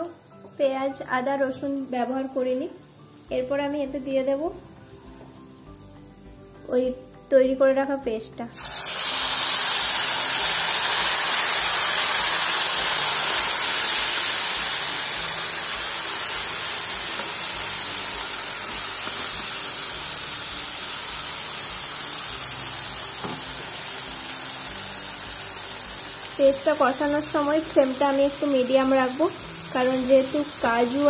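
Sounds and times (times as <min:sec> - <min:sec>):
paste sizzling in hot oil: 0:08.5 - 0:31.0.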